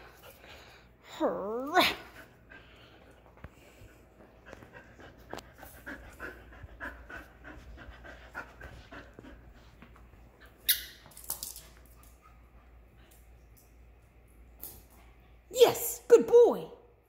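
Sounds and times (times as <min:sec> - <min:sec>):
dog panting: 0:02.0 - 0:10.4.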